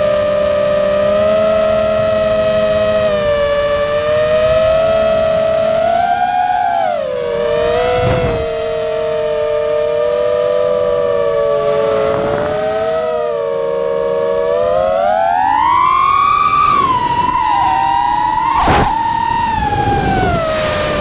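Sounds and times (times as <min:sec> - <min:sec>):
quadcopter motors whining: 0:00.0 - 0:21.0
rushes of air noise: 0:06.9 - 0:14.8, 0:15.4 - 0:21.0.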